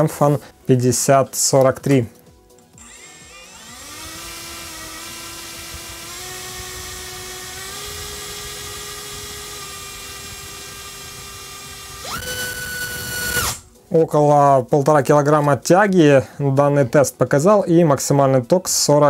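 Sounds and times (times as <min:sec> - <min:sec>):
electric motor whine: 0:02.8 - 0:13.6.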